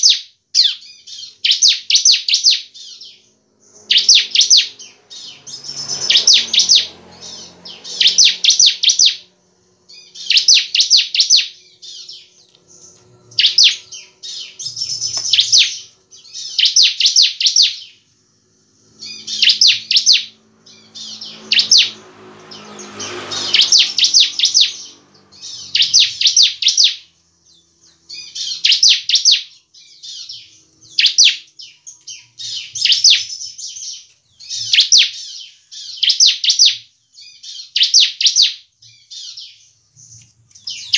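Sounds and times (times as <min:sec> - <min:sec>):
bird singing high trills: 0:00.0 - 0:40.9.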